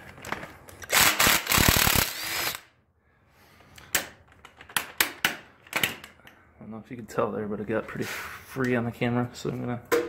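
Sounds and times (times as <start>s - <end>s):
cordless power tool spinning: 0.8s - 2.7s.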